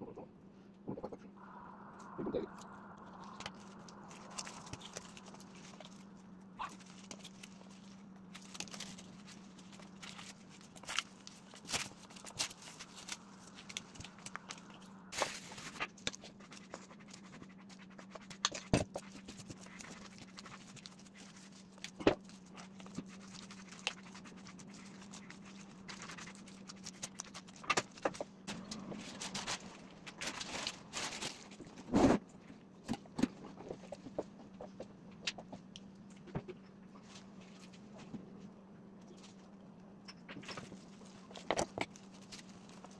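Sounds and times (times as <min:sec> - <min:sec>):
steady low hum: 0:00.0 - 0:42.9
plastic wrap crinkling: 0:02.5 - 0:31.9, 0:40.5 - 0:42.9.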